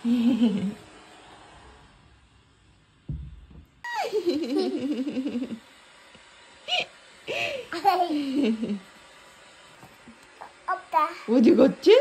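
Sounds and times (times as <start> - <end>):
low thump: 3.0 - 3.8
baby's voice: 10.4 - 11.4.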